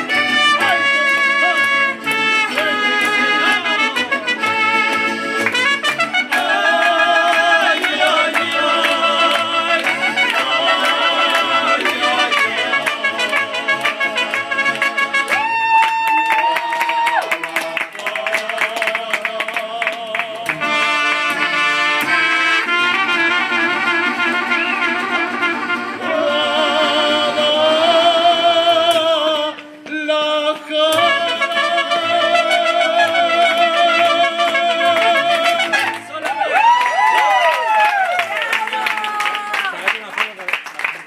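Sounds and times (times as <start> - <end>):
trumpet: 0.0 - 17.9, 20.5 - 29.6, 30.8 - 36.4
mariachi band playing: 0.0 - 40.4
men singing with vibrato: 6.2 - 21.2, 26.0 - 36.0.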